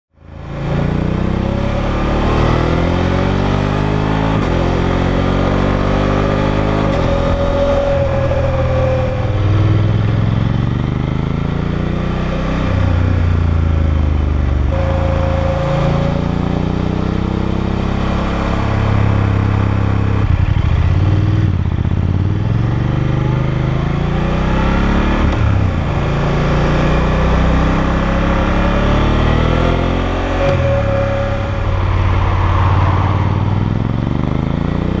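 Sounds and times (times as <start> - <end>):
motorcycle engine accelerating: 0.2 - 35.0.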